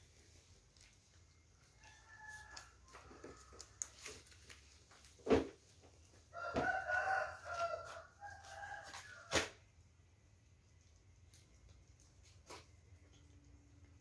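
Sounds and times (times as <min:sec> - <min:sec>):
rooster crowing: 0:01.7 - 0:03.9, 0:06.3 - 0:09.5.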